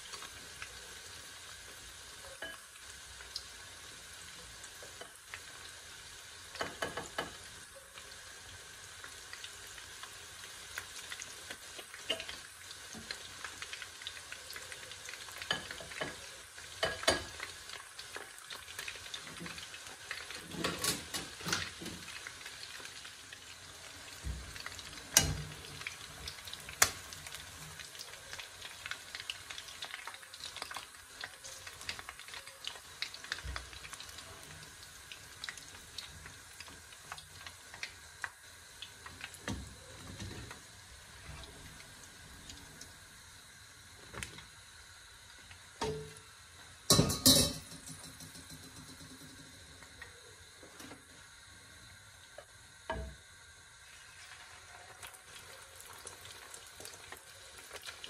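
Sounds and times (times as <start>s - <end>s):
chicken deep-frying in oil: 0.0s - 58.0s
wire skimmer clinking in pan: 46.9s - 49.3s.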